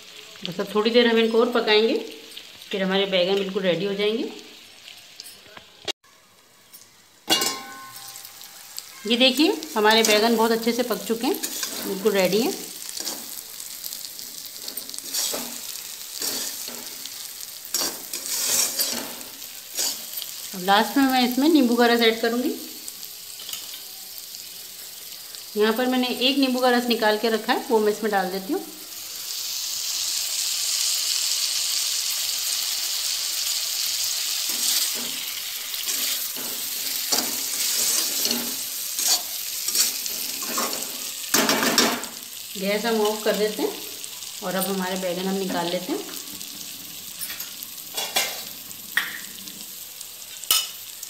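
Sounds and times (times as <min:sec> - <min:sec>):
vegetables sizzling in oil: 0:00.0 - 0:51.0
spatula scraping pan: 0:11.3 - 0:12.1, 0:14.4 - 0:17.1, 0:17.7 - 0:20.4, 0:34.4 - 0:41.8.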